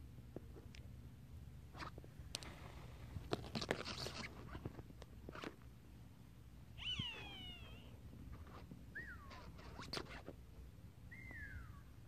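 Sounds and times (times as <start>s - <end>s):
line rustling and clicking: 1.8s - 5.7s
animal call with falling pitch: 6.8s - 8.0s, 9.0s - 10.0s, 11.1s - 11.9s.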